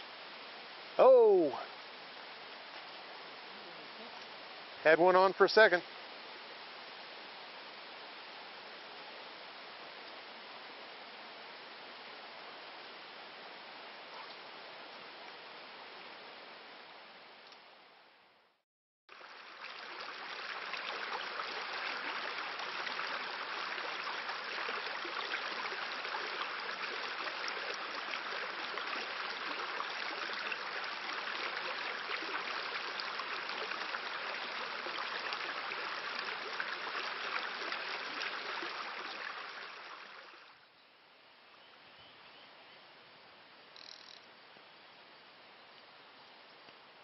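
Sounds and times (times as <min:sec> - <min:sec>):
stream water rushing: 0:00.0 - 0:08.8, 0:19.1 - 0:40.6.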